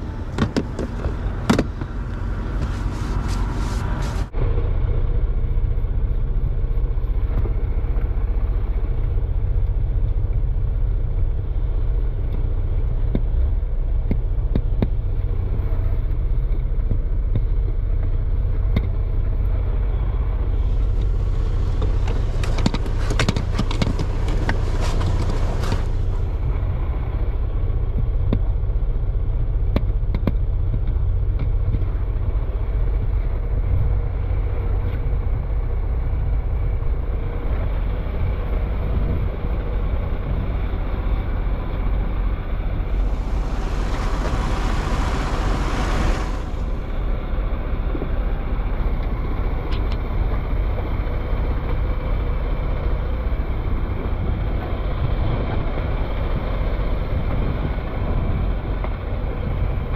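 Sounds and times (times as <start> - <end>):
rag scrubbing cab floor: 0.0 - 4.4, 20.6 - 26.2, 42.8 - 47.2
truck engine idling: 0.0 - 59.9.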